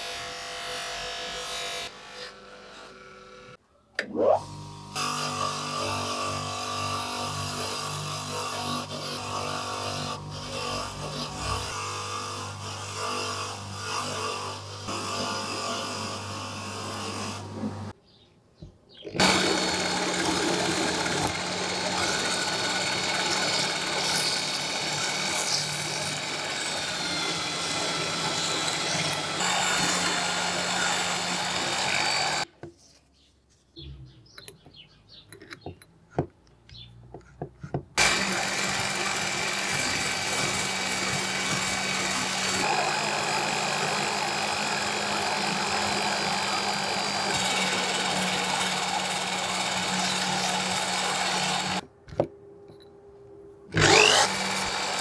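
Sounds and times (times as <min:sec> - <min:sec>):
electric drill running: 0:19.2 - 0:32.5, 0:38.0 - 0:51.8, 0:53.8 - 0:55.0.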